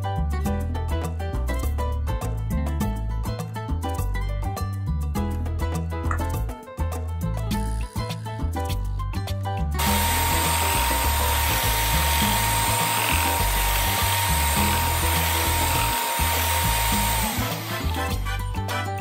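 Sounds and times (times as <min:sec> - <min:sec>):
background music: 0:00.0 - 0:19.0
electric hand mixer whirring: 0:09.8 - 0:18.3.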